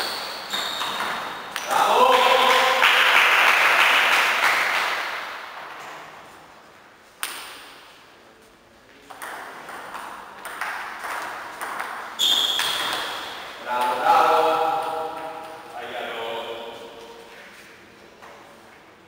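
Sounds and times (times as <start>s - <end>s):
people clapping: 1.6s - 5.4s.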